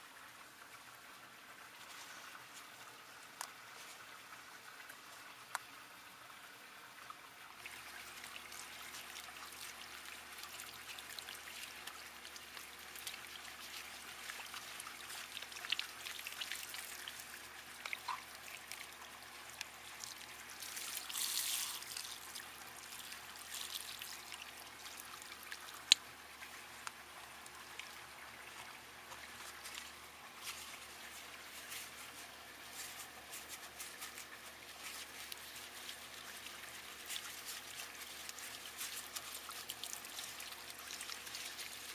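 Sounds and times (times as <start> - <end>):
water splashing on concrete: 7.6 - 32.2, 33.0 - 41.9
water running from hose: 7.6 - 41.9.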